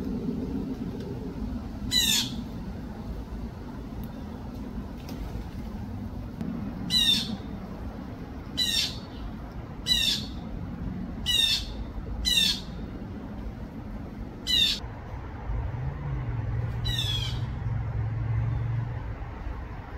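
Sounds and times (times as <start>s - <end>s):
blue jay calling: 1.9s - 2.5s, 6.9s - 7.5s, 8.5s - 10.4s, 11.2s - 12.9s, 14.4s - 14.8s, 16.8s - 17.6s.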